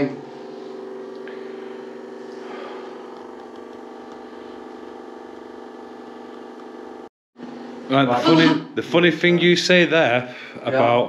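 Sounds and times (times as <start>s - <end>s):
steady droning hum: 0.0s - 7.1s.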